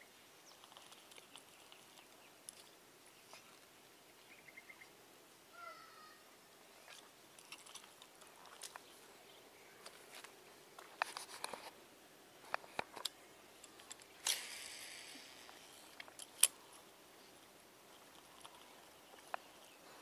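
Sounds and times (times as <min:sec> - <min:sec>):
rod and reel clicks: 0:00.5 - 0:03.7, 0:06.8 - 0:08.9, 0:12.4 - 0:19.7
fishing line hissing: 0:14.0 - 0:16.7
fishing reel spool whirring: 0:14.2 - 0:16.0.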